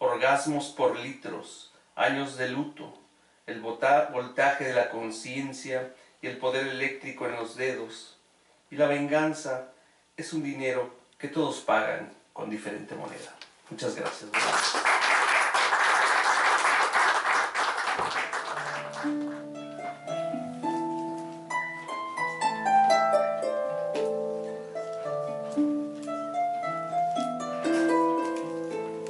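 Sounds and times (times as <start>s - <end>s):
audience applauding: 14.1s - 19.5s
plucked string music: 18.6s - 29.0s.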